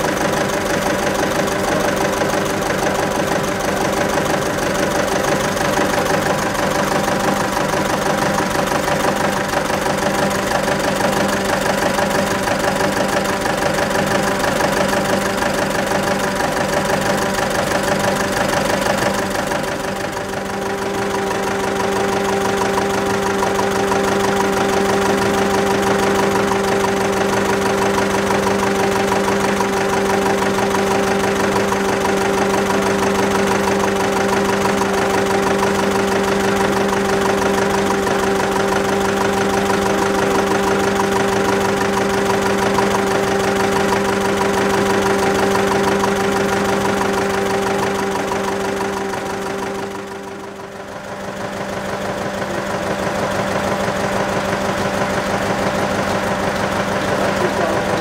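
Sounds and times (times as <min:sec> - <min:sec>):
two-cylinder engine idling: 0:00.0 - 0:58.0.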